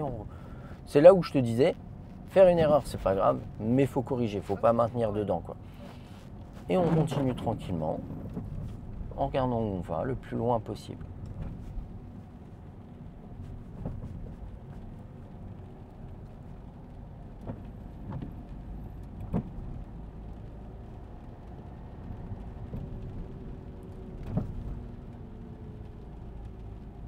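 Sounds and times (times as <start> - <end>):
car engine and road rumble: 0.0 - 27.0
short knocks and clicks: 13.7 - 14.4.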